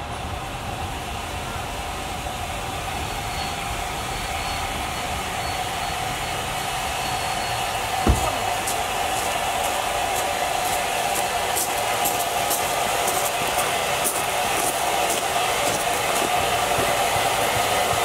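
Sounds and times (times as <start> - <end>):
train rumbling on track: 0.0 - 18.0
sharp knock: 8.0 - 9.4.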